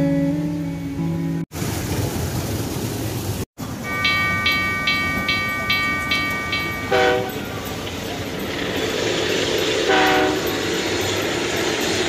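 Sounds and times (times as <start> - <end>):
ride rumbling: 1.5 - 12.0
train horn signal: 6.6 - 7.6, 9.8 - 10.6
short low horn toot: 9.9 - 10.4.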